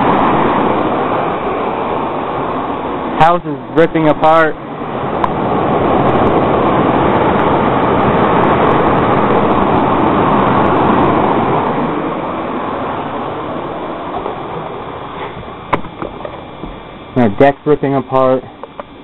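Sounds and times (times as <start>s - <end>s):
floodwater rushing: 0.0s - 17.1s.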